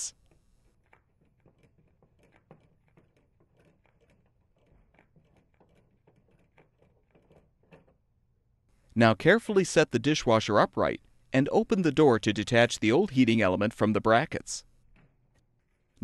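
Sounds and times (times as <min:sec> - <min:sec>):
plastic nut clicking and scraping: 0:00.2 - 0:08.0.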